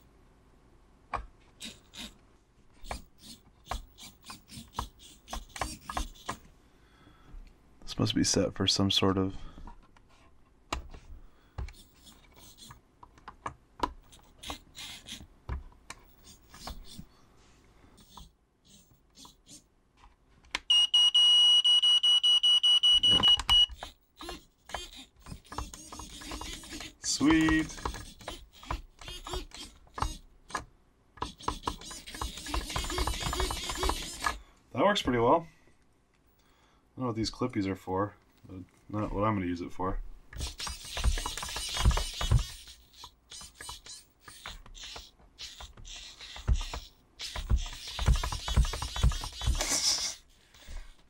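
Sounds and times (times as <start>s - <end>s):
rapid high-pitched warning beep: 20.7s - 23.7s
servo motors whirring in bursts: 24.3s - 30.2s, 31.2s - 34.4s, 40.4s - 50.2s.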